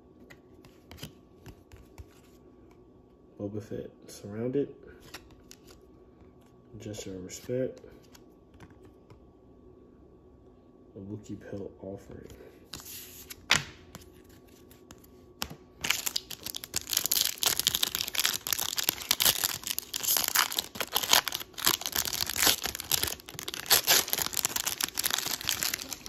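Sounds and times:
wrapper crackling: 0:15.8 - 0:26.0.

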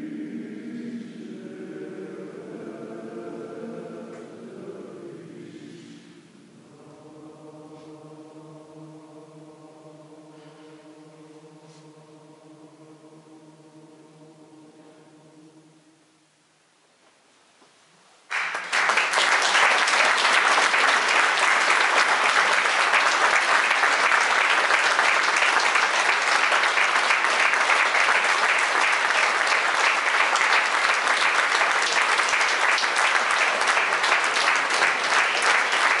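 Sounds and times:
audience applauding: 0:18.3 - 0:36.0.

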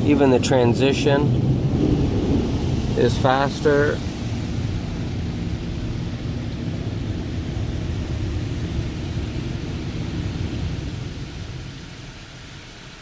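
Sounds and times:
car wash spray rumble: 0:00.0 - 0:13.0.

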